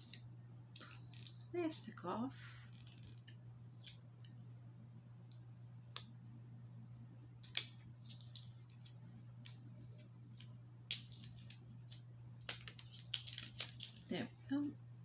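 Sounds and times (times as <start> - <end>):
steady low hum: 0.0 - 15.0
plastic wrap crinkling: 7.4 - 14.7.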